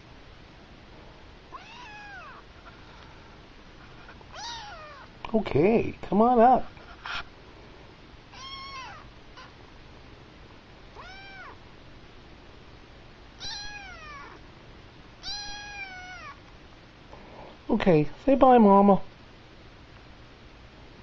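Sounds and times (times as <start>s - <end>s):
kitten meowing: 1.5s - 2.4s, 4.3s - 5.1s, 8.3s - 9.5s, 10.9s - 11.6s, 13.4s - 14.4s, 15.2s - 16.4s.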